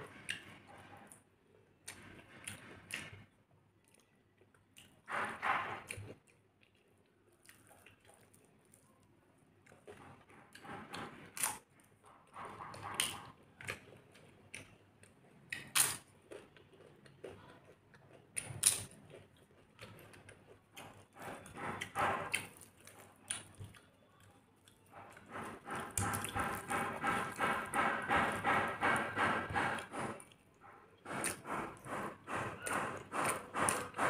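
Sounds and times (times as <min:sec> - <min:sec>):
soft chewing: 0:00.0 - 0:34.0
fingers mixing food on steel plate: 0:24.5 - 0:34.0.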